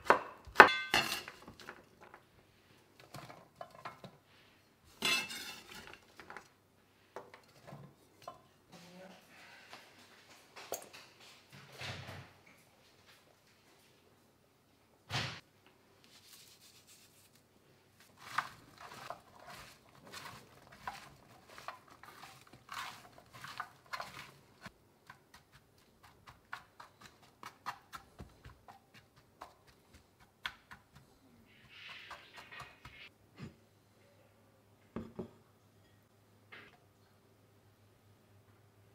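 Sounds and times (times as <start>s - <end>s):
vegetables rustling in oil: 16.1s - 30.8s.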